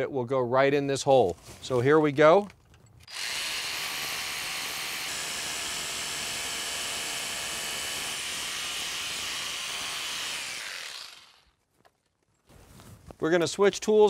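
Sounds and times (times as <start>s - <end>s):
cordless drill boring through steel: 3.1s - 11.6s.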